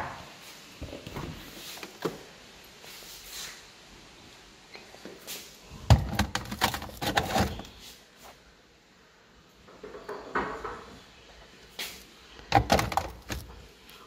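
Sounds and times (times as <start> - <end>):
plastic containers shifted: 5.8 - 7.8, 12.4 - 13.7.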